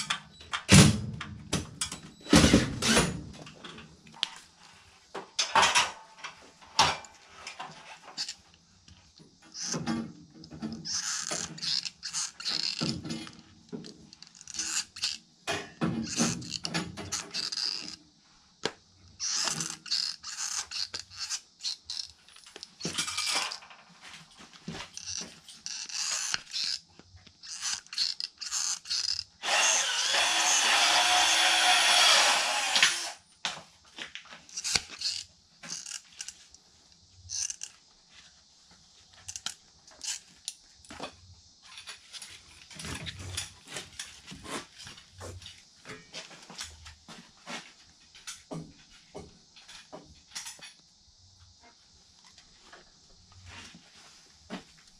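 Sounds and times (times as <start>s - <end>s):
tin snips clicking and scraping: 6.8s - 18.0s, 19.1s - 23.7s, 24.6s - 30.0s, 34.5s - 37.8s, 39.1s - 41.0s.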